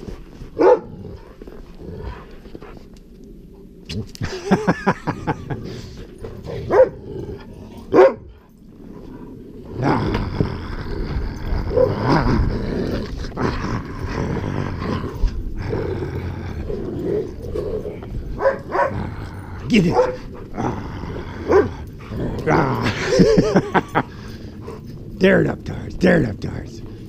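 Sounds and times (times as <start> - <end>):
dogs growling: 0.0 - 27.0
dogs barking: 0.6 - 1.0, 6.2 - 7.0, 7.8 - 8.5, 17.2 - 19.1, 19.7 - 20.6, 21.4 - 23.8.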